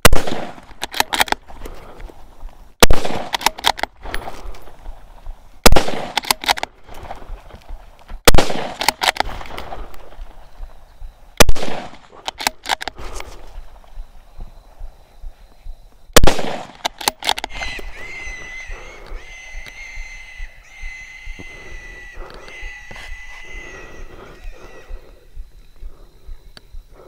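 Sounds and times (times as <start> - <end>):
rifle shots: 0.0 - 1.4, 2.8 - 4.4, 5.6 - 6.7, 8.3 - 10.2, 11.4 - 12.8, 16.2 - 17.6
rattle of sharp cracks: 0.2 - 1.4, 2.9 - 4.6, 5.8 - 7.7, 8.3 - 10.2, 11.5 - 13.0, 16.2 - 17.7.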